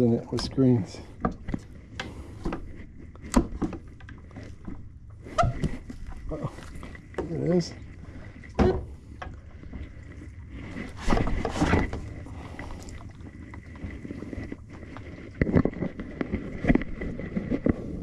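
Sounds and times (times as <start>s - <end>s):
wooden boards scraping: 0.4s - 18.0s
wooden boards clunking: 8.5s - 9.1s.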